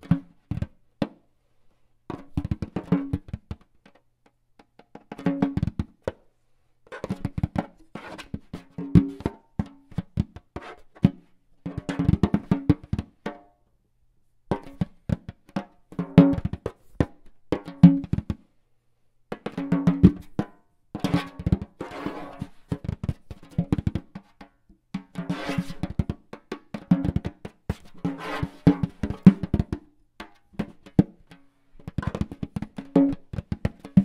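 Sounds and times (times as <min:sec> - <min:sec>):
drum and woodblock strikes: 0:22.8 - 0:34.0.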